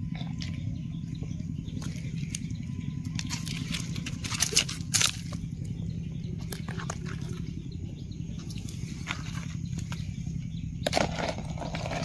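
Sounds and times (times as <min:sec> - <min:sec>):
low rumble: 0:00.0 - 0:12.0
dry leaves rustling and crackling: 0:03.2 - 0:05.5.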